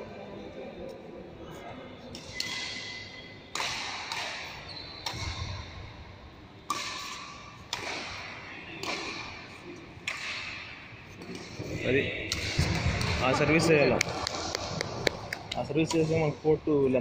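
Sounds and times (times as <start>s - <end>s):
rackets hitting shuttlecock: 2.1s - 5.8s, 6.6s - 11.6s, 12.3s - 13.4s, 14.0s - 16.3s.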